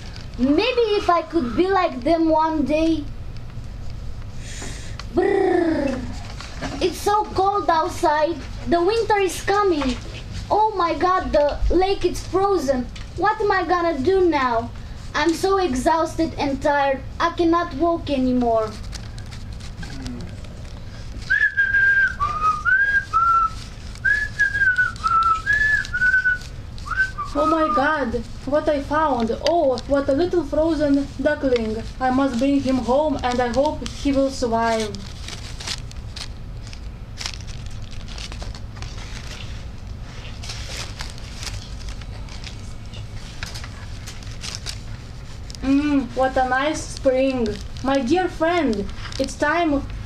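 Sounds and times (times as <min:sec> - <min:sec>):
low background hum: 0:00.0 - 0:50.0
paper rustling: 0:05.8 - 0:16.6, 0:17.3 - 0:50.0
person whistling a tune: 0:21.3 - 0:27.8.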